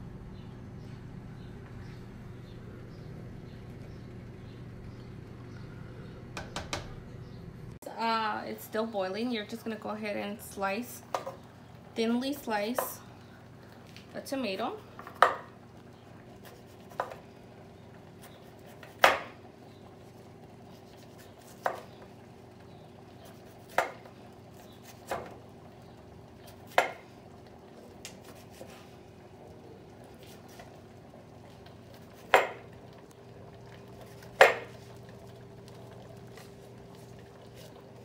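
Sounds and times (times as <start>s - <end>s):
knife slicing tomato: 20.7s - 21.9s, 28.0s - 28.8s.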